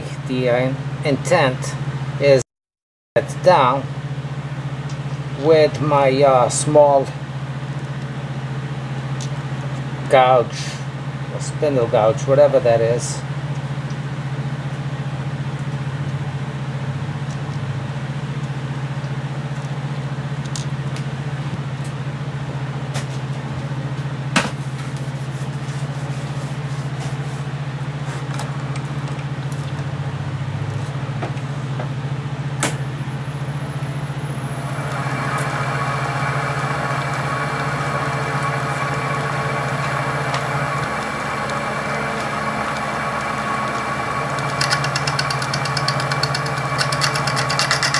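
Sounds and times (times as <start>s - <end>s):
lathe motor humming: 27.4s - 47.9s
high whine: 27.5s - 47.9s
sharp clicks: 39.6s - 47.9s.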